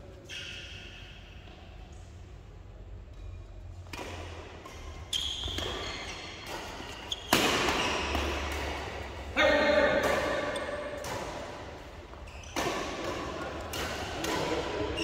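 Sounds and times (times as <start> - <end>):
racket hitting shuttlecock: 3.8 - 15.0.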